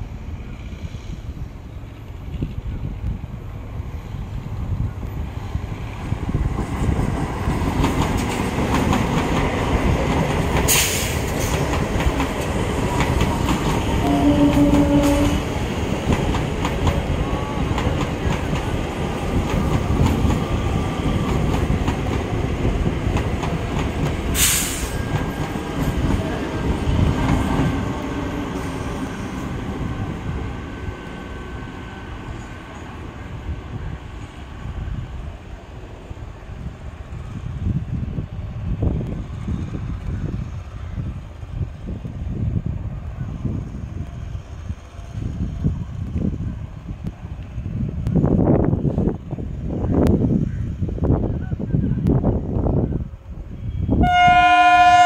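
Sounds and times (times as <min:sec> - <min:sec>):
train wheels rumbling on rails: 0:00.0 - 0:55.0
sharp hissing: 0:10.7 - 0:11.7, 0:24.2 - 0:25.3
train horn: 0:14.0 - 0:15.5, 0:53.6 - 0:55.0.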